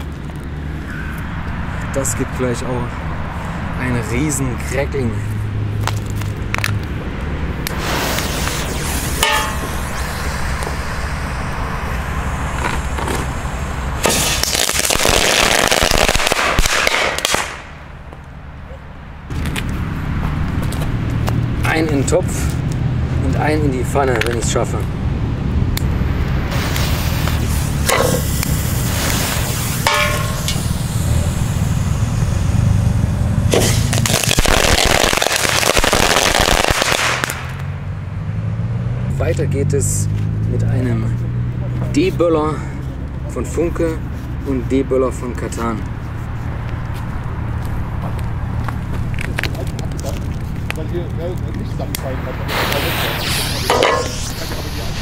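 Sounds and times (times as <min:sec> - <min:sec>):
firecrackers crackling: 0:05.8 - 0:07.0, 0:07.6 - 0:18.4, 0:25.7 - 0:37.8, 0:46.9 - 0:55.0
crackling firework in a frying pan: 0:07.7 - 0:17.6, 0:49.2 - 0:55.0.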